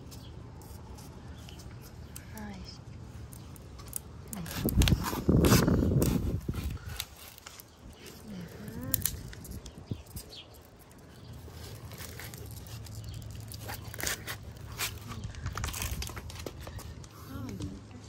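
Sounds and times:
mesh crinkles and clicks: 6.9 - 17.7.

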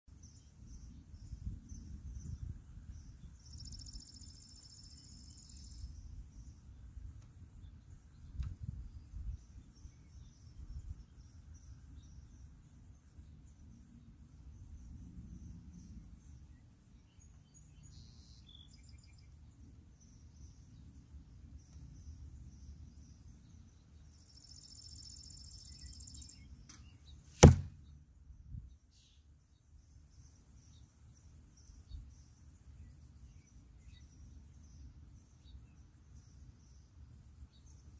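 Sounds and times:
high insect or bird trill: 0.1 - 37.9
wind rumble on microphone: 0.2 - 4.2, 5.5 - 17.0
arrow thud into target: 26.6 - 27.8
bowstring snap: 26.6 - 27.8.

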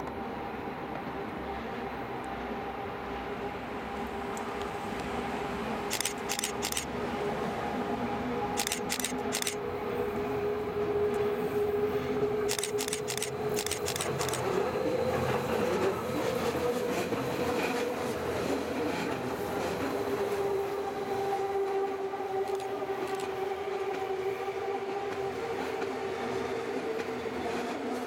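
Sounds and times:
electric train whine: 0.0 - 28.0
train wheel noise on rails: 0.0 - 28.0
sharp high clicks: 5.9 - 6.9, 8.6 - 9.6, 12.5 - 14.5, 22.5 - 23.3.

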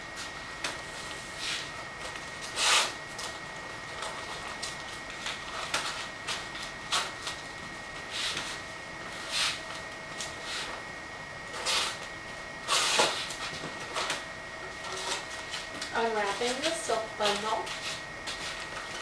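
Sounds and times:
paper rustling and crinkling: 12.7 - 19.0.

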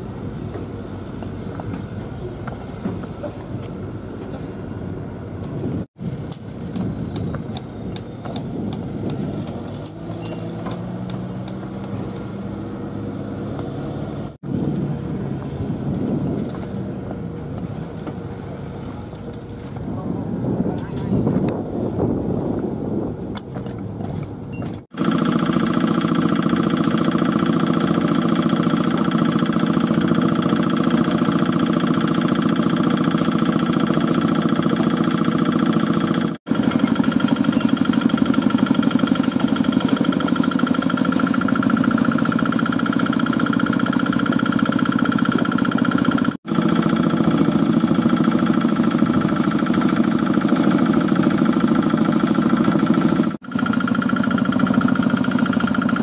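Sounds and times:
diesel engine chugging: 23.9 - 56.0.

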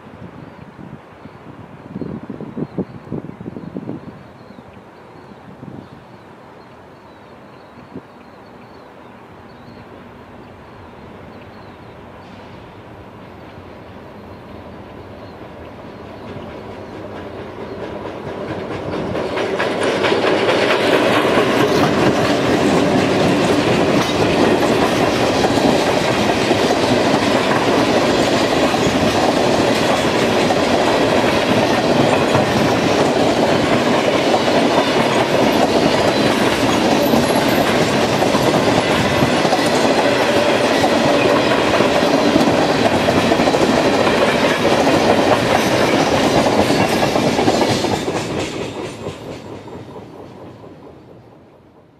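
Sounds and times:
freight train wheels clattering: 16.0 - 51.9.

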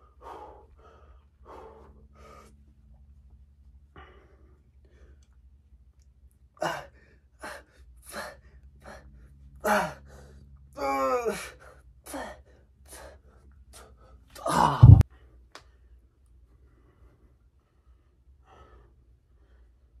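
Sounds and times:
man breathing hard: 0.0 - 2.9, 3.8 - 5.6, 6.6 - 10.6, 11.3 - 20.0.

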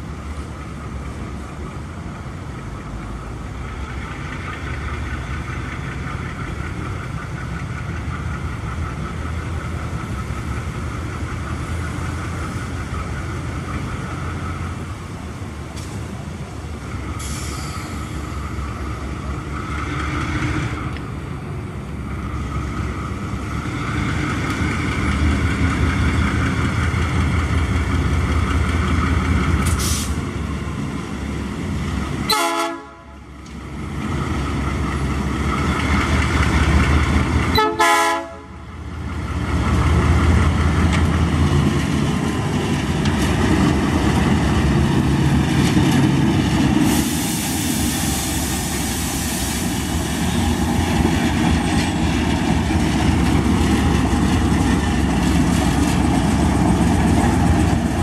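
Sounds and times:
locomotive diesel engine running: 0.0 - 58.0
hiss: 17.0 - 18.4, 29.6 - 30.3, 46.8 - 50.9.

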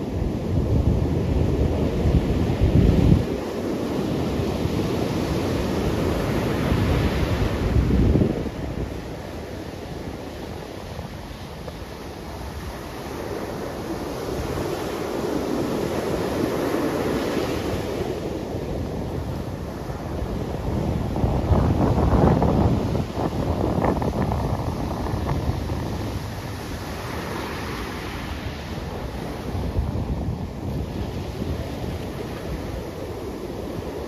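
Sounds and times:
surf breaking on beach: 0.0 - 34.0
wind rumble on microphone: 0.0 - 34.0.

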